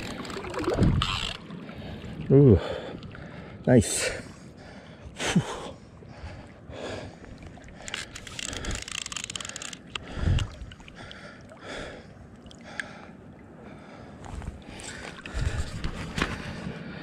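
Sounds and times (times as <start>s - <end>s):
water sloshing and lapping: 0.0s - 17.0s
fly reel ratchet clicking: 1.0s - 1.4s, 7.8s - 10.0s.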